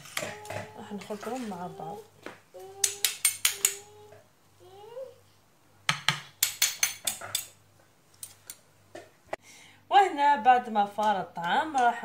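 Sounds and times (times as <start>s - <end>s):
metal spoon scraping clay dish: 6.4s - 7.6s.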